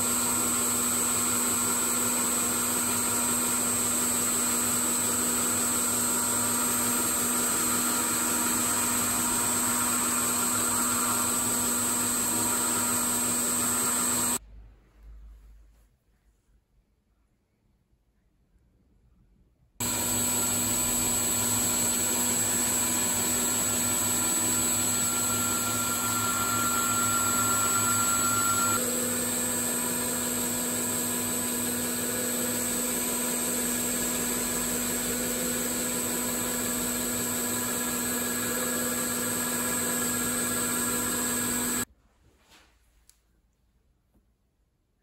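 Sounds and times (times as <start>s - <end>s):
lathe motor hum and whine: 0.0s - 14.4s, 19.8s - 41.9s.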